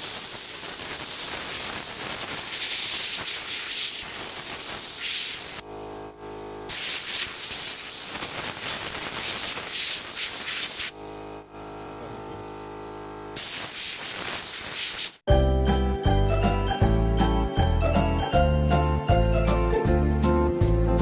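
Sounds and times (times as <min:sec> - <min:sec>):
electric arc sizzling through wood: 0:00.0 - 0:05.6, 0:06.7 - 0:11.0, 0:13.4 - 0:15.3
jingling music: 0:15.3 - 0:21.0.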